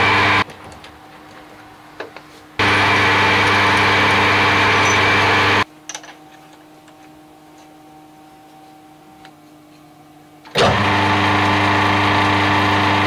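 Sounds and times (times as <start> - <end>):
metal lathe humming: 0.0 - 0.4, 2.6 - 5.7, 6.3 - 13.0.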